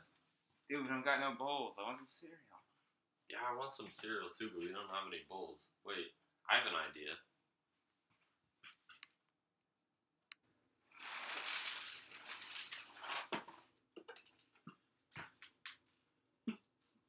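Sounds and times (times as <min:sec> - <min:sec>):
cereal pouring onto tile floor: 0:11.0 - 0:13.3.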